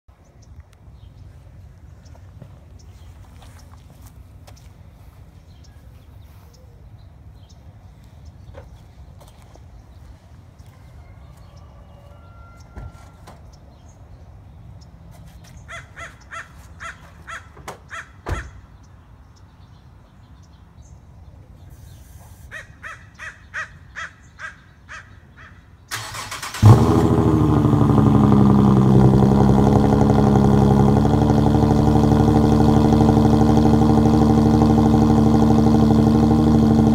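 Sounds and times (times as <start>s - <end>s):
car engine starting and idling: 25.9s - 36.9s
engine cranking whir: 25.9s - 36.9s.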